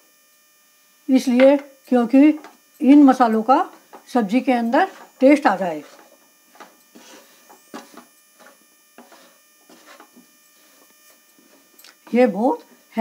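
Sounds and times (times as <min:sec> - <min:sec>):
spoon stirring vegetables in a pan: 0:03.4 - 0:10.8.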